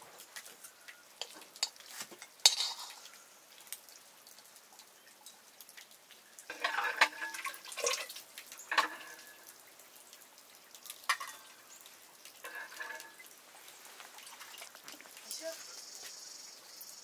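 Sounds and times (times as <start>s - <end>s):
water dripping and splashing: 0.0s - 17.0s
metal pots clinking: 0.6s - 3.2s, 6.5s - 9.6s, 10.9s - 11.6s, 12.4s - 13.3s.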